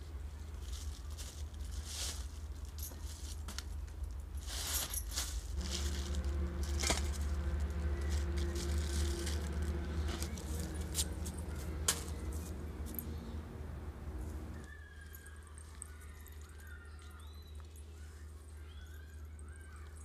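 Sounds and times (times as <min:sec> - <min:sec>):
plastic sack rustling: 0:00.6 - 0:12.6
bangles clinking: 0:04.1 - 0:13.5
low rumble: 0:05.4 - 0:14.6.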